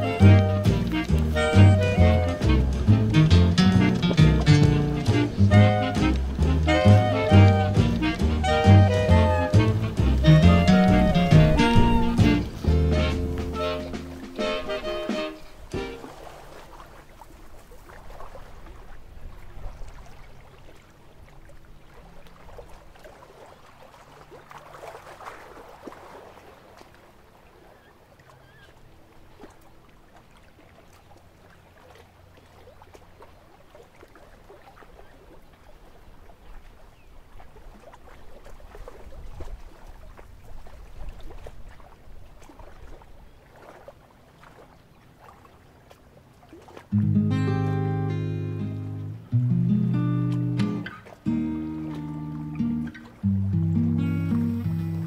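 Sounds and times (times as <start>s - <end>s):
water lapping: 0.0s - 55.0s.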